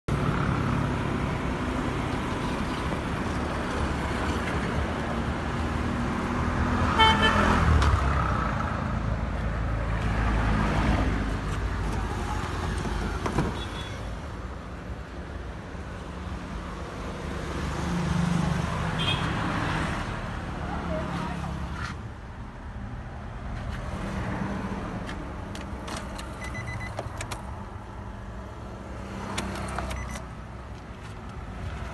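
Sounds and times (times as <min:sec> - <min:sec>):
traffic noise: 0:00.1 - 0:31.9
car horn toot: 0:07.0 - 0:07.6.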